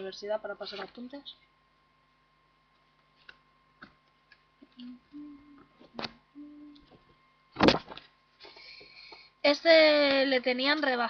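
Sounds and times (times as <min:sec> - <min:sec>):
short low hums: 0:04.6 - 0:07.8.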